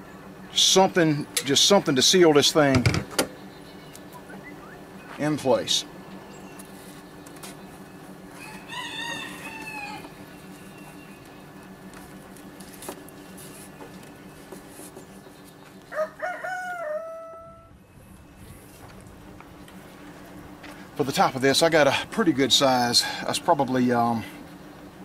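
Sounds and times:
rooster crowing: 0:08.3 - 0:10.5, 0:15.9 - 0:17.8.

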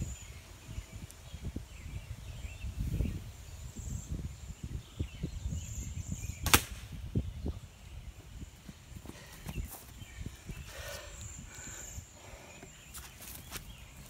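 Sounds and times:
wind rumbling on microphone: 0:00.0 - 0:12.9
arrow smacking target: 0:06.4 - 0:07.0.

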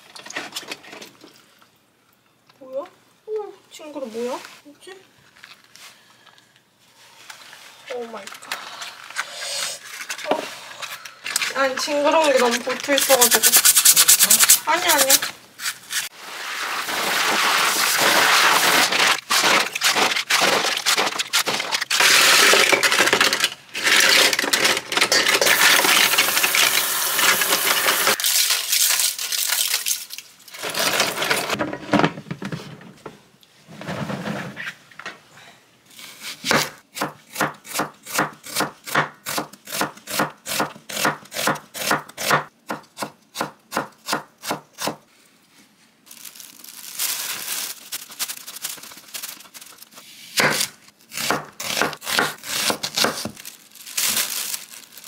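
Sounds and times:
hand scraping and rubbing: 0:09.2 - 0:21.4.

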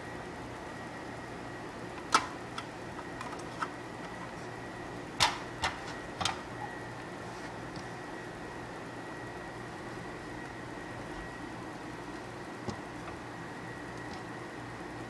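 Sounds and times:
faint hum: 0:00.0 - 0:15.0.

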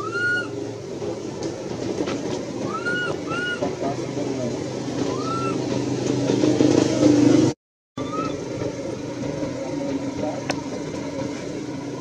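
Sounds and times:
high rising-and-falling call: 0:00.0 - 0:00.6, 0:02.6 - 0:03.7, 0:05.0 - 0:05.7, 0:08.0 - 0:08.4
vehicle engine running: 0:00.0 - 0:12.0.

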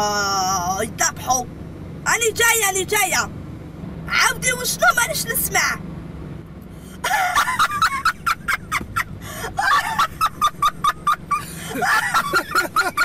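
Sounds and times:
low hum of car cabin: 0:00.0 - 0:13.0
woman laughing hard: 0:07.0 - 0:13.0.

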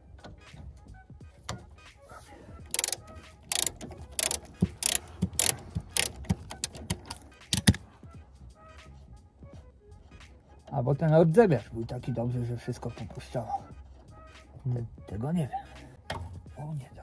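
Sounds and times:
ratchet wrench clicking: 0:02.7 - 0:07.8.

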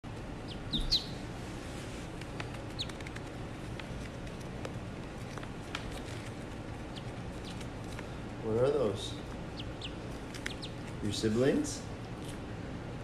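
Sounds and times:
low steady hum: 0:00.0 - 0:13.0
ducklings peeping: 0:00.4 - 0:01.3, 0:02.4 - 0:03.3, 0:06.8 - 0:11.3.

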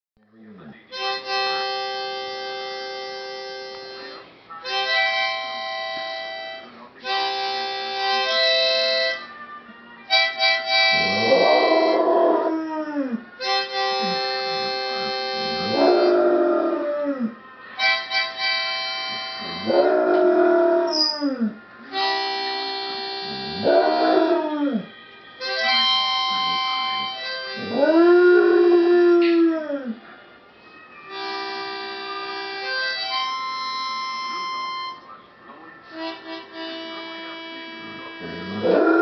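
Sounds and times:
harmonica chords: 0:00.8 - 0:29.8, 0:31.0 - 0:39.0
dog howling: 0:10.9 - 0:17.4, 0:19.4 - 0:21.6, 0:23.3 - 0:24.9, 0:26.4 - 0:30.0, 0:38.2 - 0:39.0.

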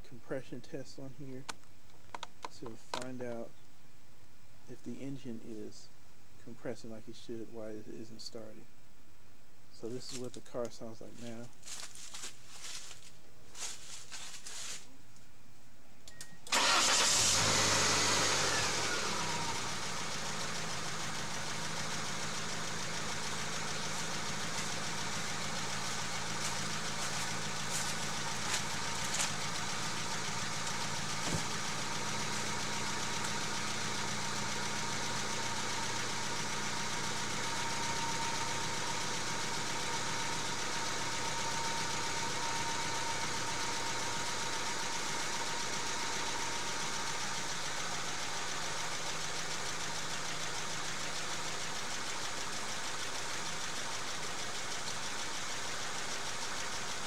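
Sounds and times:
engine cranking by starter: 0:16.4 - 0:48.1.

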